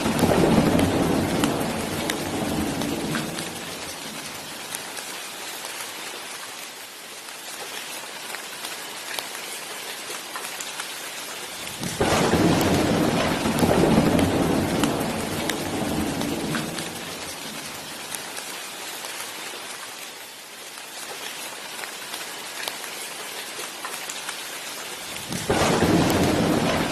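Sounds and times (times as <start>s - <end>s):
thunder rumbling: 0.0s - 4.8s, 11.7s - 18.1s, 25.1s - 26.9s
steady rain: 0.0s - 26.9s.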